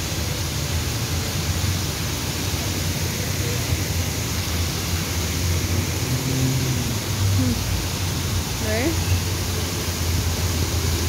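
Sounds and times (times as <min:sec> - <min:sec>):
fountain water splashing: 0:00.0 - 0:11.0.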